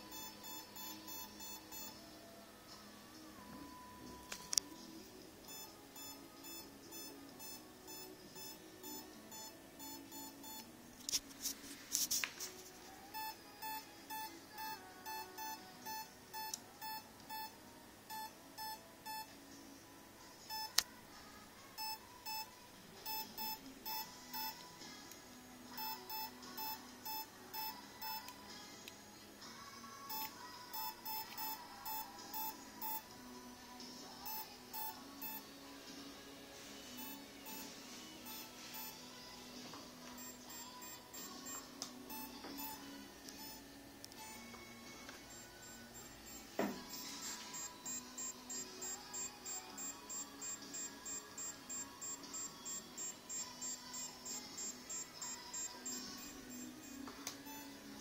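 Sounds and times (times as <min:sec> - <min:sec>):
speed controller beeping: 0:23.1 - 0:24.6, 0:25.8 - 0:28.3, 0:30.1 - 0:33.1, 0:37.0 - 0:39.0, 0:40.2 - 0:44.5, 0:45.3 - 0:57.7.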